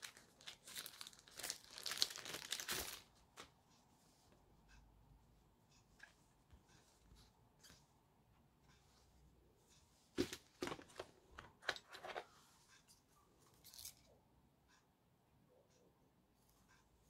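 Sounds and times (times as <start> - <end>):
packaging rustle: 0.0 - 3.1.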